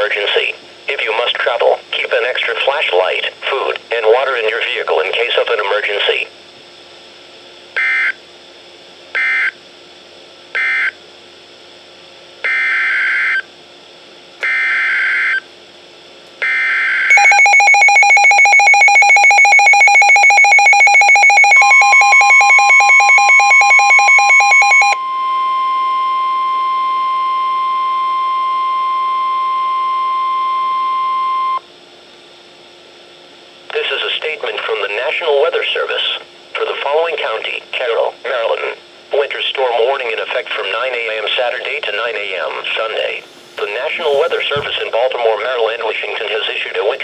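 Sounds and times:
radio alarm beeping in rapid pulses: 0:07.8 - 0:08.2, 0:09.2 - 0:09.6, 0:10.6 - 0:11.0, 0:12.4 - 0:13.5, 0:14.4 - 0:15.5, 0:16.4 - 0:31.7
steady single-pitch alert tone: 0:16.4 - 0:31.6.

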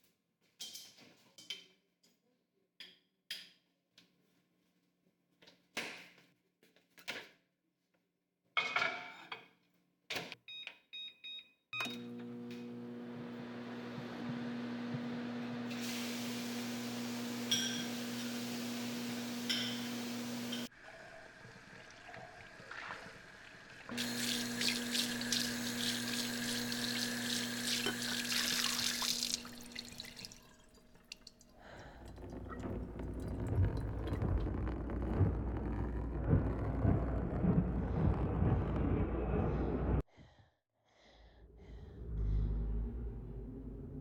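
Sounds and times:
tap running into sink: 0:23.9 - 0:34.5.

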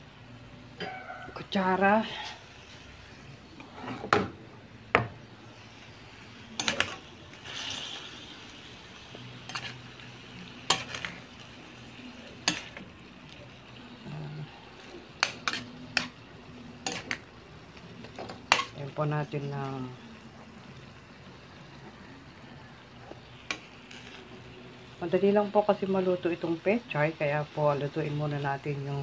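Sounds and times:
food sizzling: 0:00.0 - 0:29.0
spatula scraping metal pan: 0:03.6 - 0:04.3.

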